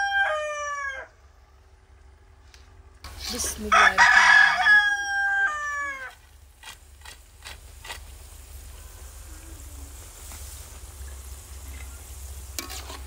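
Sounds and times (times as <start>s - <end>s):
rooster crowing: 0.0s - 1.2s, 3.7s - 6.2s.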